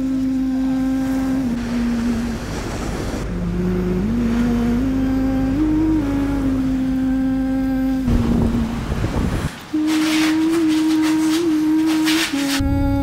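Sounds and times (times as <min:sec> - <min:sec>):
sea waves breaking: 0:00.0 - 0:13.0
slow melodic music: 0:03.2 - 0:09.0, 0:09.7 - 0:13.0.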